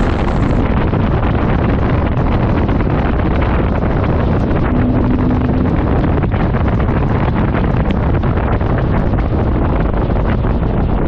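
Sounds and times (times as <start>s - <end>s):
steady hum: 0.0s - 11.0s
truck exhaust: 0.0s - 11.0s
wind buffeting microphone: 0.0s - 11.0s.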